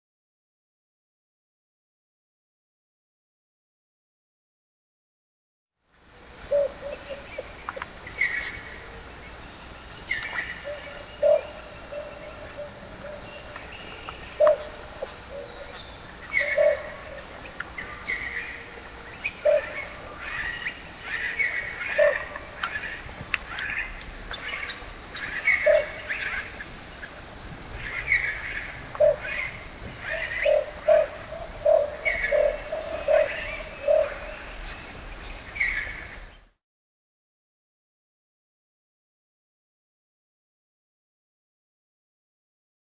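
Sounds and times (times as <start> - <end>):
bird hooting: 6.5 - 7.5, 10.6 - 13.5, 14.3 - 18.6, 19.3 - 22.8, 24.6 - 26.5, 27.9 - 34.6.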